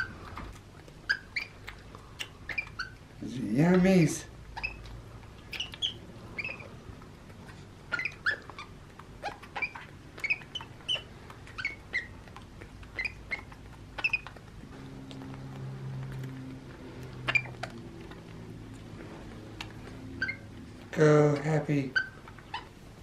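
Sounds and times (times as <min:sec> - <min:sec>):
baby monkey squeaking: 0:01.0 - 0:03.2, 0:04.5 - 0:14.5, 0:17.2 - 0:17.9, 0:19.9 - 0:22.8.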